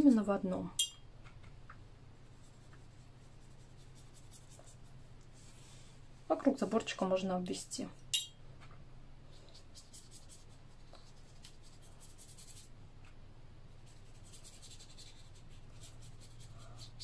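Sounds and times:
faint low hum: 0.0s - 17.0s
brush stroking on paper: 2.2s - 5.9s, 9.3s - 12.7s, 13.7s - 17.0s.

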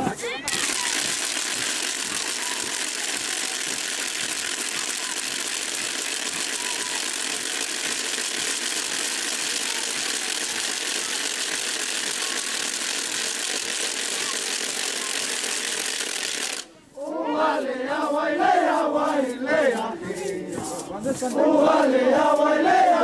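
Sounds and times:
crowd of dancers rattling din: 0.0s - 16.7s.

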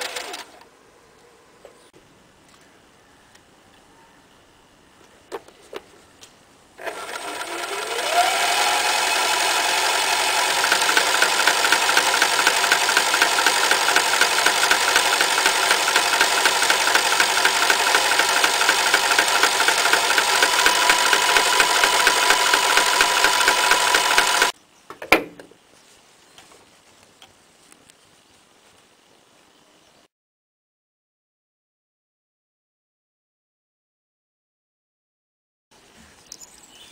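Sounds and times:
sewing machine stitching: 0.0s - 0.6s, 6.8s - 24.6s.

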